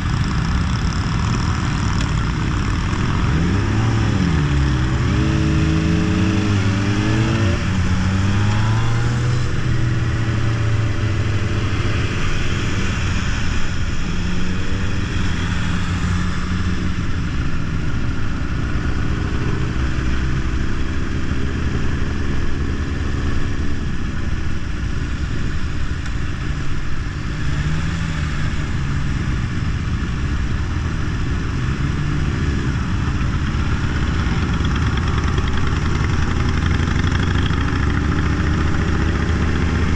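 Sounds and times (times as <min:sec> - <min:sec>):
motorcycle engines riding: 0:00.0 - 0:39.9
rushing wind and road noise: 0:00.0 - 0:39.9.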